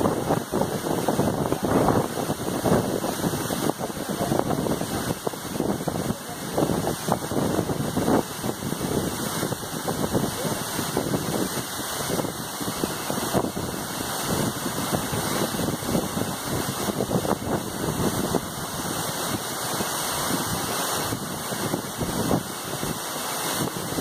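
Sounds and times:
waterfall rushing: 0.0 - 24.0.

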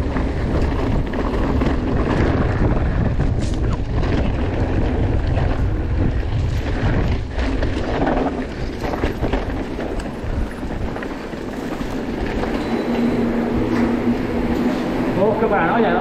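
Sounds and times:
bike rattling: 0.0 - 16.0
tyres on rough ground: 0.0 - 16.0
wind on microphone: 0.0 - 16.0.

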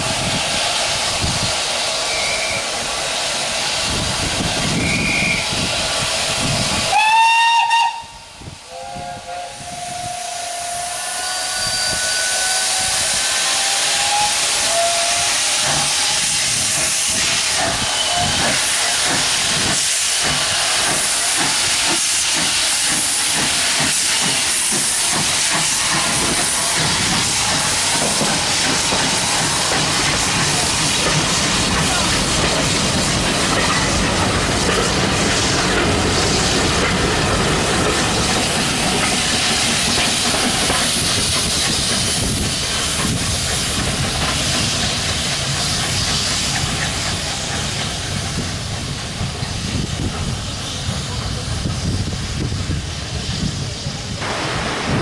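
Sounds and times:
steam hissing: 0.0 - 55.0
steam locomotive whistle: 1.9 - 2.9, 4.6 - 5.7, 6.8 - 19.0.

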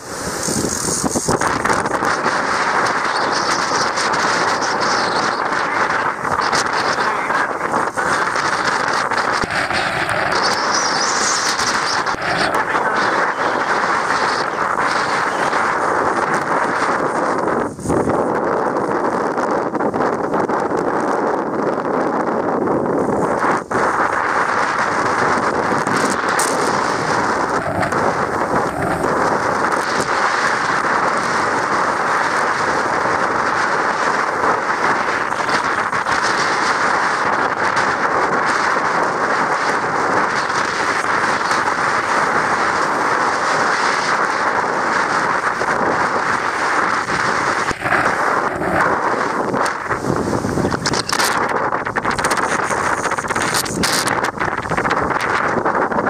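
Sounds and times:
boat wake foaming: 0.0 - 18.2, 23.1 - 56.0
wind on microphone: 0.0 - 56.0
waves breaking: 38.6 - 55.3.

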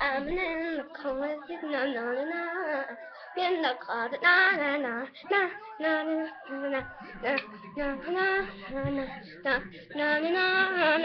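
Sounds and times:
young child singing: 0.0 - 11.0.

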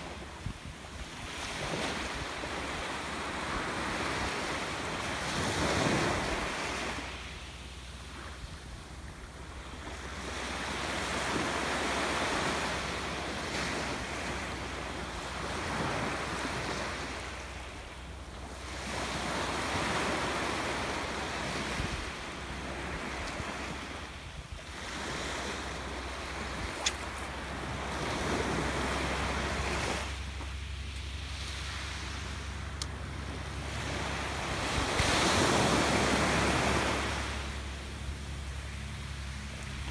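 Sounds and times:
wind rumbling on microphone: 0.0 - 7.2
waves washing up beach: 0.0 - 39.9
sharp click: 26.8 - 27.1.

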